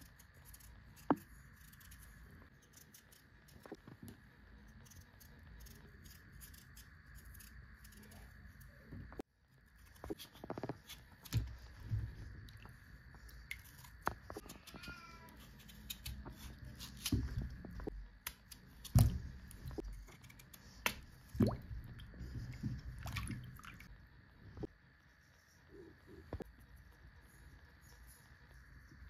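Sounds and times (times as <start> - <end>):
knife scraping potato skin: 0.0 - 3.8, 4.6 - 8.4, 13.5 - 19.2.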